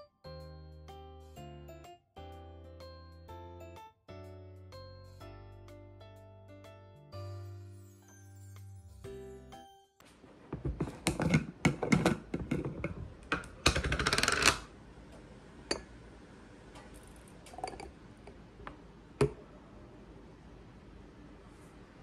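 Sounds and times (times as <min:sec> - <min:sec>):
laptop keyboard typing: 0:13.4 - 0:14.6
glass jars clunking: 0:15.7 - 0:15.9, 0:17.5 - 0:18.0.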